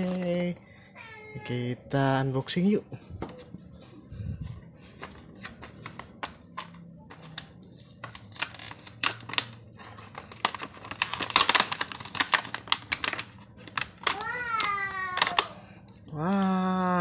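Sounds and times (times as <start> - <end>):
plastic packaging crinkling: 4.8 - 16.4.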